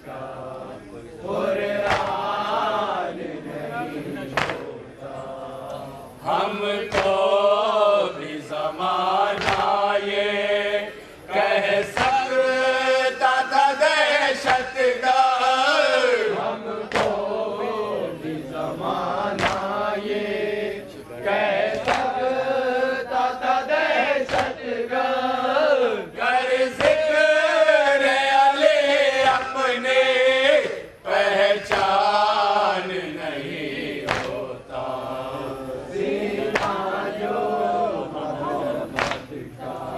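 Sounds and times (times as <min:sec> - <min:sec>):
men chanting in unison: 0:00.0 - 0:39.9
hands slapping chests: 0:01.8 - 0:02.2, 0:04.3 - 0:04.7, 0:06.9 - 0:07.2, 0:09.4 - 0:09.8, 0:11.9 - 0:12.2, 0:14.4 - 0:14.7, 0:16.9 - 0:17.2, 0:19.4 - 0:19.8, 0:21.7 - 0:22.2, 0:24.2 - 0:24.6, 0:26.8 - 0:27.0, 0:29.2 - 0:29.6, 0:31.7 - 0:32.0, 0:34.0 - 0:34.4, 0:36.5 - 0:36.9, 0:38.9 - 0:39.4.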